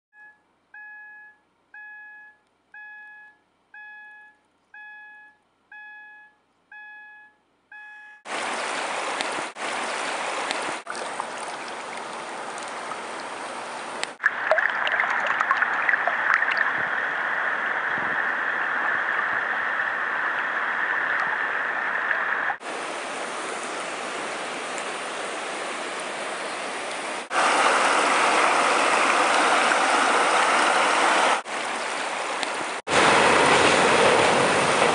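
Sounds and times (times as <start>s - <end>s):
repeated steady tone: 0.1s - 8.3s
river rushing over rapids: 16.4s - 34.9s.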